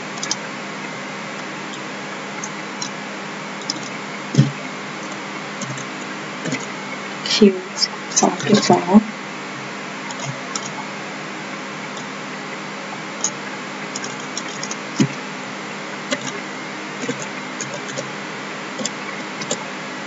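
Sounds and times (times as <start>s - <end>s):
background hiss and hum: 0.0s - 20.0s
computer keyboard keystrokes: 5.6s - 5.9s, 14.0s - 15.2s, 16.1s - 16.3s, 17.0s - 18.1s.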